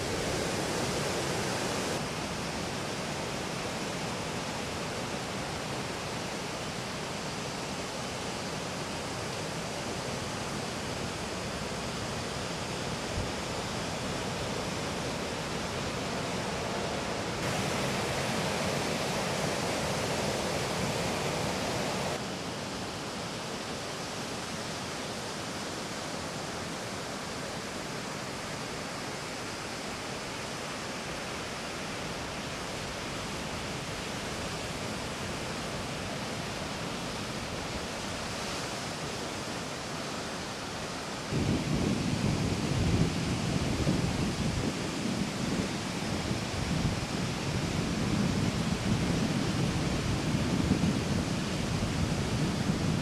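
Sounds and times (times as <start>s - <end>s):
ocean surf breaking: 17.4s - 22.2s.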